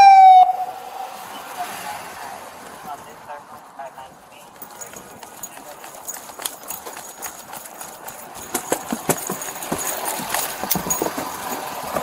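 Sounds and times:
quick footsteps on pavement: 2.6 - 12.0.

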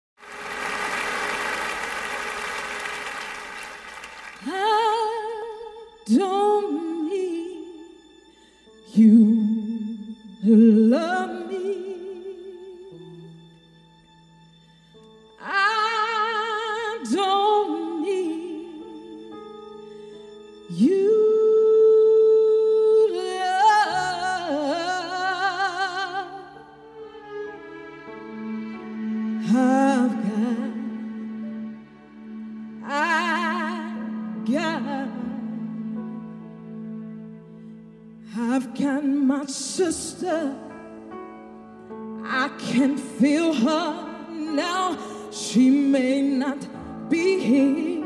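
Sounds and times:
audience applause: 0.2 - 4.6
woman singing with vibrato: 4.4 - 7.7
woman singing a ballad: 4.4 - 7.9, 15.4 - 19.2, 20.7 - 26.6, 38.3 - 40.7, 42.2 - 48.0.

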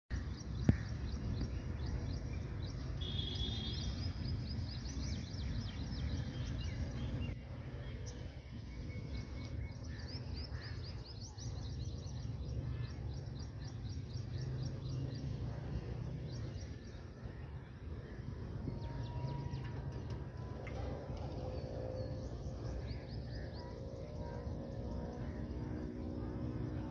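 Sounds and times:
low outdoor rumble: 0.1 - 26.9
bird trill: 2.9 - 4.9.

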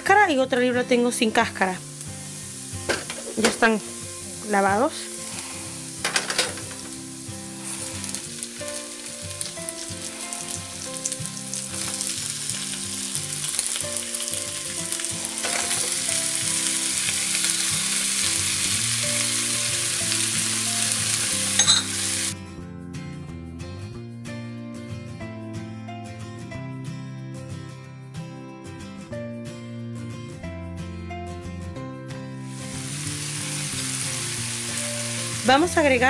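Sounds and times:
shrimp sizzling in oil: 0.8 - 22.4, 32.4 - 36.0
clink: 21.6 - 21.9.

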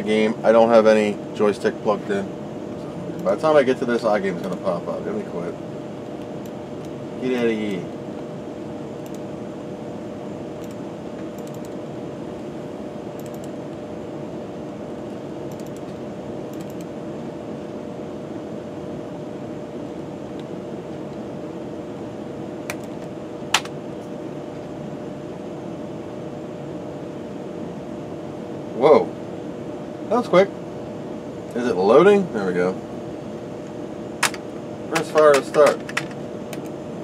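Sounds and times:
fan hum: 0.0 - 37.0
computer mouse clicks: 9.0 - 9.2, 10.6 - 11.8, 13.2 - 13.6, 15.5 - 16.9, 22.7 - 23.0.

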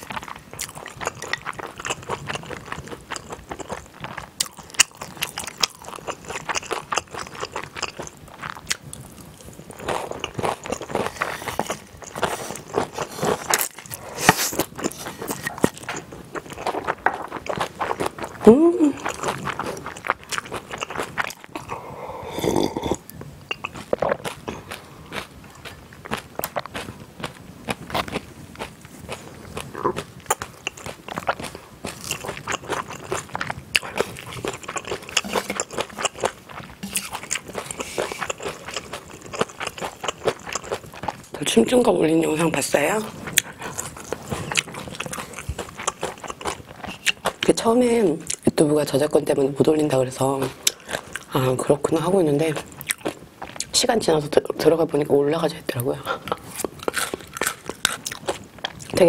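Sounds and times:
crunching chews: 0.0 - 41.4, 42.8 - 47.5, 52.5 - 53.8, 56.3 - 59.0
wet mouth clicks: 22.4 - 24.3, 33.8 - 38.4
noodles slurping: 29.4 - 41.2.

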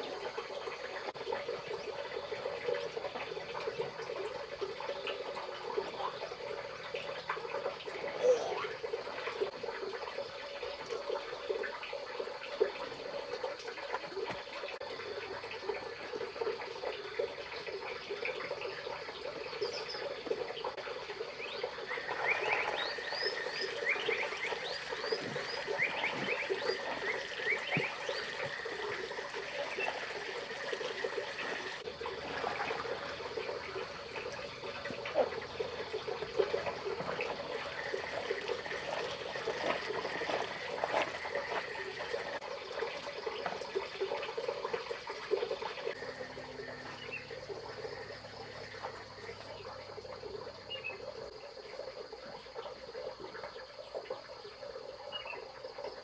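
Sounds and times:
water sloshing and splashing: 0.0 - 54.8
water spilling onto wooden boards: 21.8 - 49.3.

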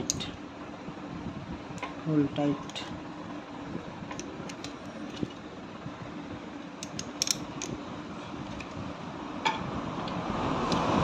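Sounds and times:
spanner clicking on a bolt: 6.8 - 7.8.

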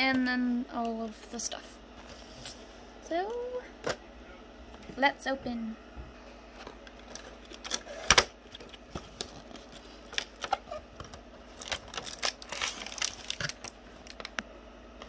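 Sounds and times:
packaging scraping and clicking: 6.6 - 14.4.

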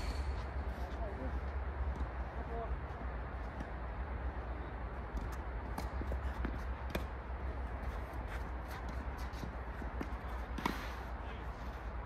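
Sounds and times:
steady low hum: 0.0 - 12.0
tennis ball knocks and scuffs: 5.1 - 7.2, 7.9 - 11.1.

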